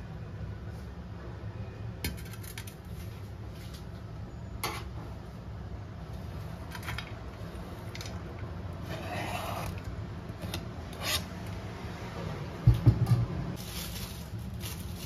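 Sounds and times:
leaves swishing into a bowl: 0:13.6 - 0:15.0.

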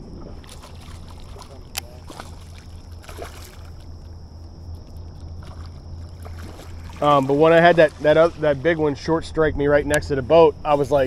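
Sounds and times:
steady low hum: 0:00.0 - 0:11.0
fish splashing at water surface: 0:00.4 - 0:08.8.

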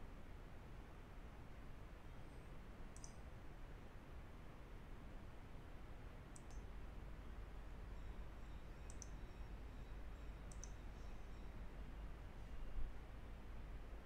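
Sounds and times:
steady low hum: 0:00.0 - 0:14.0
computer mouse button clicking: 0:03.0 - 0:03.2, 0:06.3 - 0:06.6, 0:08.9 - 0:09.1, 0:10.5 - 0:10.8.

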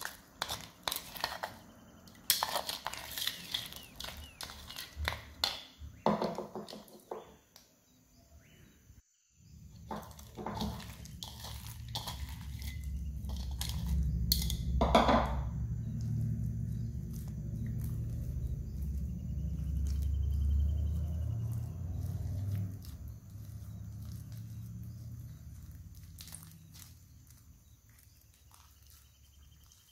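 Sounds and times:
low rumble of handling: 0:09.7 - 0:29.8
slime squishing with wet clicks: 0:15.9 - 0:29.9.

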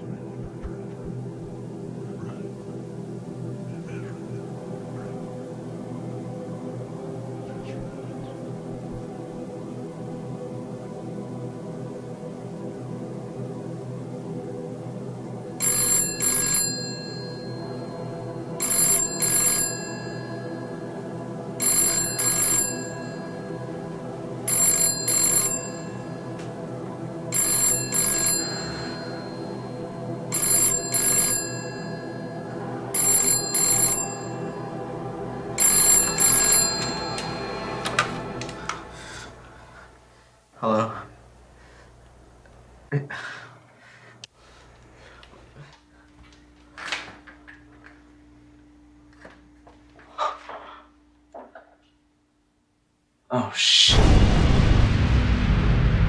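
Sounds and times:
low sustained drone: 0:00.0 - 0:15.7, 0:16.9 - 0:41.8
telephone double ring: 0:15.6 - 0:17.7, 0:18.6 - 0:20.6, 0:21.6 - 0:23.4, 0:24.5 - 0:26.2, 0:27.3 - 0:29.5, 0:30.3 - 0:32.3, 0:33.0 - 0:34.5, 0:35.6 - 0:38.4.

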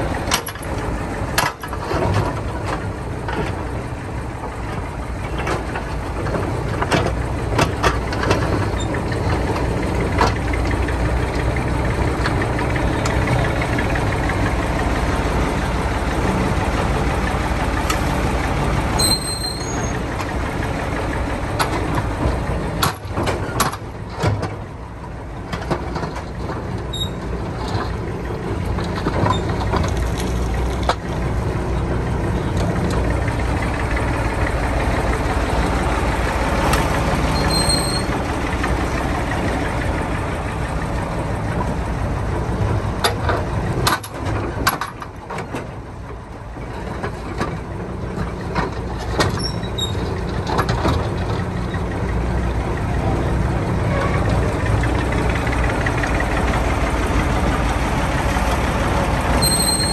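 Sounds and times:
backhoe engine running: 0:00.0 - 0:59.9
metal clanks and knocks: 0:21.5 - 0:24.7, 0:25.4 - 0:34.4, 0:43.0 - 0:45.7, 0:46.6 - 0:52.4.

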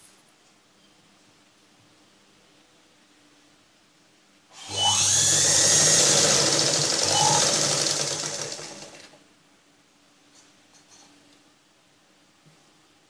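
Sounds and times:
sewing machine stitching: 0:04.6 - 0:09.2.

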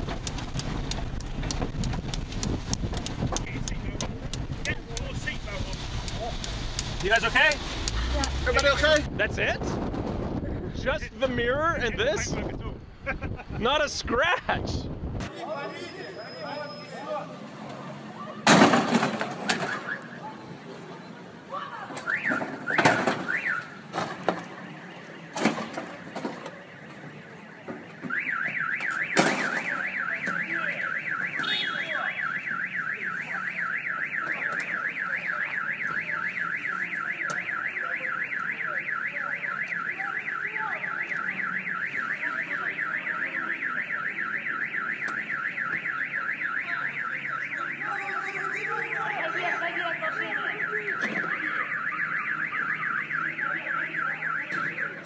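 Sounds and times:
car alarm warbling siren: 0:22.0 - 0:23.8, 0:28.0 - 0:55.0.

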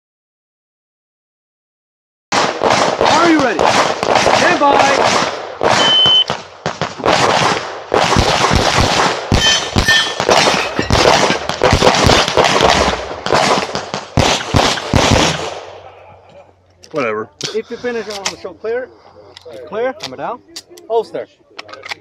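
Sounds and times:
pistol shots: 0:02.3 - 0:15.8
shot timer beep: 0:05.8 - 0:06.3
metallic ringing: 0:09.4 - 0:11.0.

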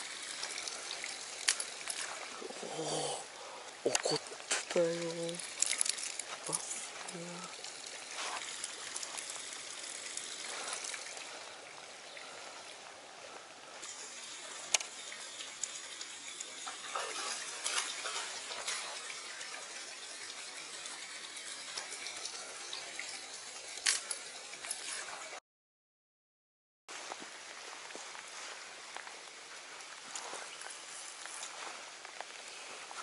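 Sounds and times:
water flowing: 0:00.0 - 0:25.4
lure splashing on water: 0:03.9 - 0:11.4.

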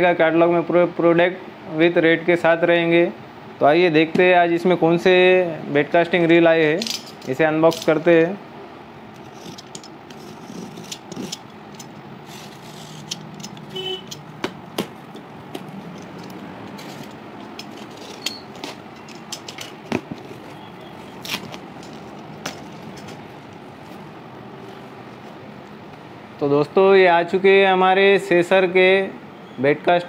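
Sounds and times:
steady background hum: 0:00.0 - 0:30.0
box cutter scraping packing tape: 0:09.2 - 0:14.2, 0:16.7 - 0:23.2.

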